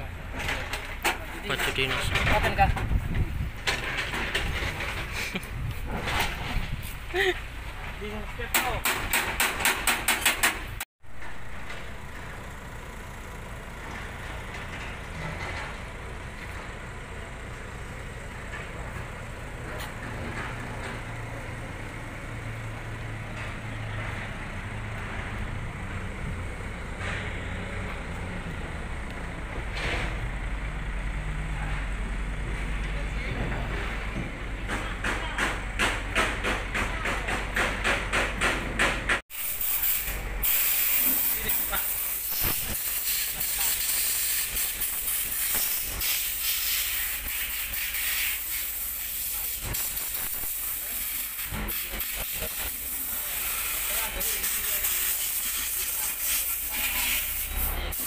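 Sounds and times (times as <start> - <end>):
spray gun hissing: 39.4 - 58.0.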